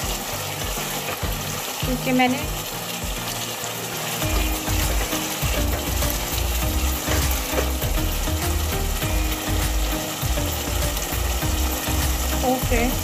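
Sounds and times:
masala sizzling in oil: 0.0s - 13.0s
spoon scraping a pan: 7.0s - 7.9s.

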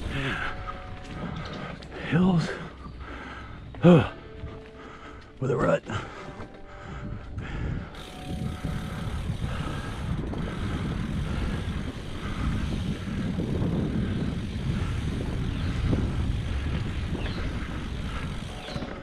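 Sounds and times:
bike tyres on dirt trail: 0.0s - 19.0s
wind buffeting microphone: 6.0s - 19.0s.

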